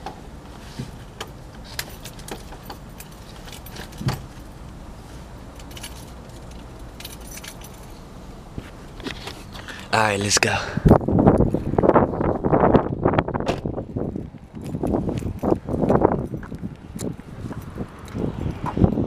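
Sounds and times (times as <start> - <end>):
keys jingling: 1.3 - 4.6, 5.5 - 8.0, 14.0 - 19.0.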